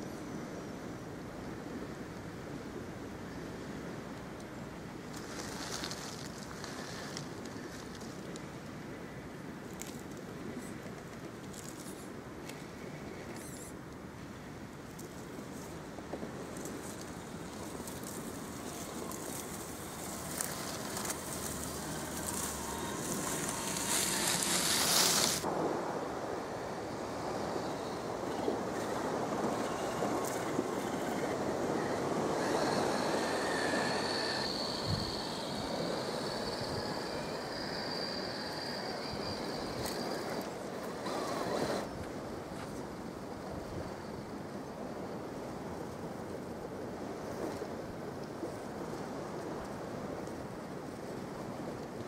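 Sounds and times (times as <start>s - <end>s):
wind: 0.0s - 52.0s
toy car electric motor whining: 13.3s - 13.7s, 17.8s - 25.4s, 29.6s - 41.9s
waves: 14.2s - 52.0s.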